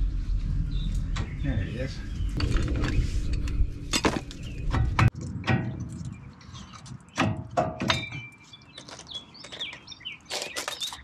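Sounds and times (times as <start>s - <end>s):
metallic knocks and clanks: 2.4s - 8.4s.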